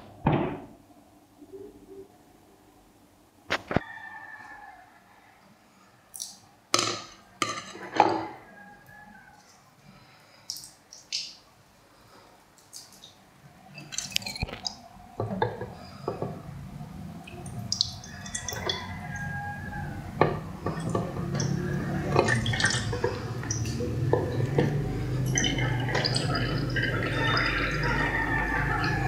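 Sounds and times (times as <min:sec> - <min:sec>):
water splashing and dripping: 0:10.5 - 0:11.4, 0:12.6 - 0:13.2, 0:17.2 - 0:19.4, 0:20.3 - 0:29.0
aquarium filter pump humming: 0:13.3 - 0:29.0.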